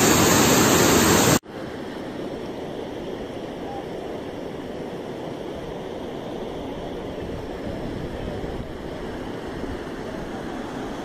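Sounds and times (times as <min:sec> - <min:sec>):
river rushing: 0:00.0 - 0:11.0
wind buffeting microphone: 0:06.8 - 0:11.0.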